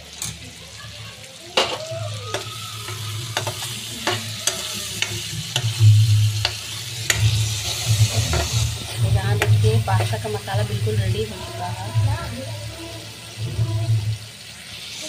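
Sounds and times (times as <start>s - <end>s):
sauce sizzling in pan: 0.0s - 15.0s
metal spatula scraping pan: 1.6s - 11.9s.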